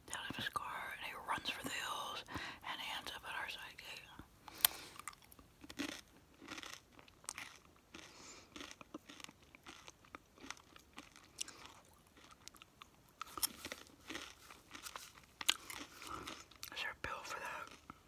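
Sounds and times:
crunchy food chewing: 4.4s - 18.0s.

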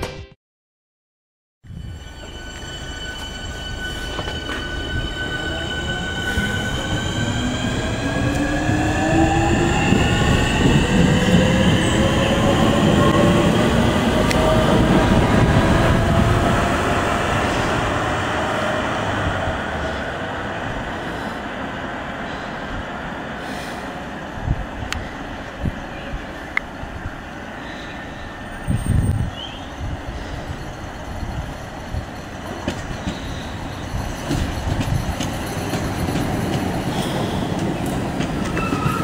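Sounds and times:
wheels rumbling on rails: 1.6s - 39.0s
traction motors whining: 1.8s - 20.0s.

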